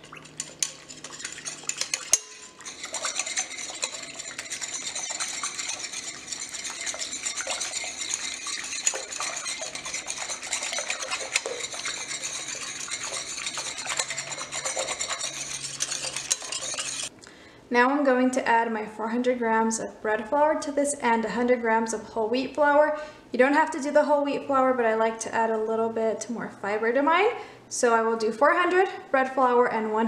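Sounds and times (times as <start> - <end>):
water swishing: 0.0 - 17.1
whisk clicking against glass: 0.0 - 17.1.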